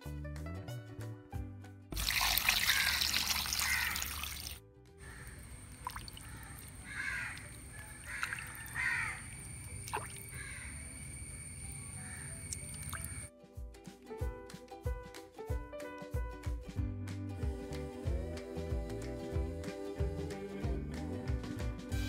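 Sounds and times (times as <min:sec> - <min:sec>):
background music: 0:00.0 - 0:02.6, 0:13.3 - 0:22.0
water splashing and trickling: 0:01.9 - 0:13.3
crows cawing: 0:02.5 - 0:13.3.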